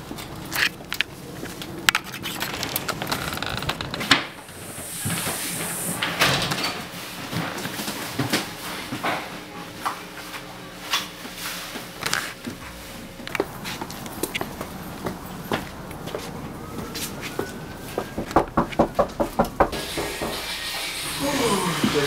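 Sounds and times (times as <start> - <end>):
door opening: 2.0 - 6.8
knocks and scuffs of people moving: 7.2 - 20.4.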